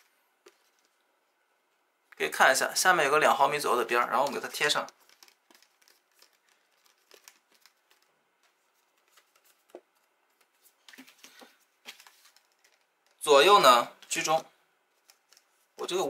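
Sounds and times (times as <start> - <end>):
cardstock rustling and tapping: 4.2 - 13.2.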